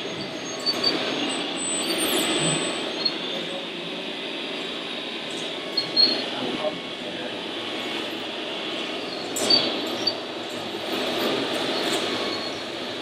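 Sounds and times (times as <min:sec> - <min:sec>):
short high squeaks: 0:00.0 - 0:03.4, 0:05.4 - 0:06.3, 0:09.0 - 0:10.3, 0:11.0 - 0:12.8.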